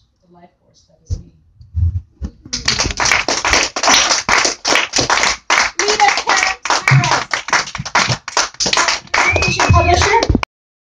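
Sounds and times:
audience applauding: 2.6 - 10.5.

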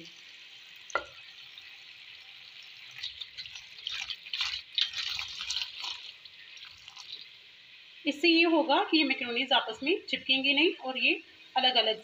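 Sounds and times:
tap water splashing on pasta: 0.8 - 1.3, 2.9 - 7.3.

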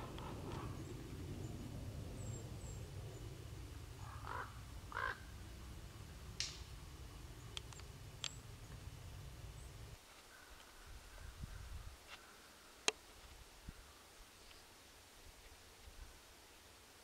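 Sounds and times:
low steady rumble: 0.0 - 10.0
crow cawing: 4.0 - 5.4, 10.3 - 12.7
sharp clicks: 7.5 - 8.8.

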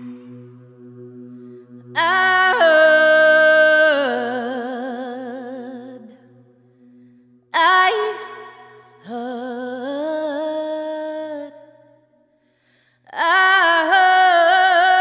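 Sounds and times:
low steady drone: 0.0 - 10.1
woman singing: 1.9 - 6.4, 7.6 - 12.1, 13.1 - 15.0.

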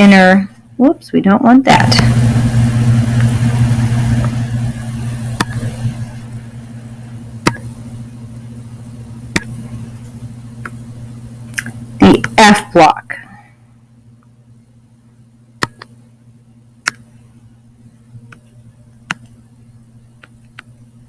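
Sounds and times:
steady low hum: 0.0 - 21.0
sharp clicks: 15.6 - 15.9, 16.8 - 17.0.

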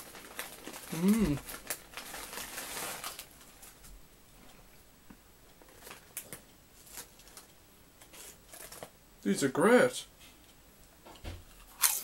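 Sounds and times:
foil crisp packet crinkling: 0.0 - 3.8, 5.6 - 7.5, 8.1 - 8.9.

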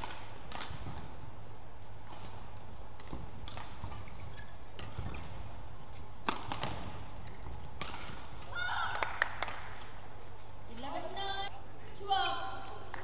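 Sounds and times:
racket hitting shuttlecock: 0.0 - 1.2, 1.8 - 10.0
low hall hum: 0.0 - 13.0.

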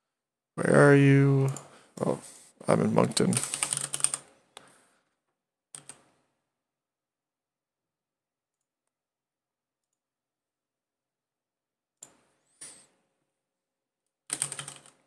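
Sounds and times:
faint mouse clicks: 1.4 - 1.7
computer keyboard keystrokes: 3.3 - 4.2, 5.8 - 6.0, 14.3 - 15.0.

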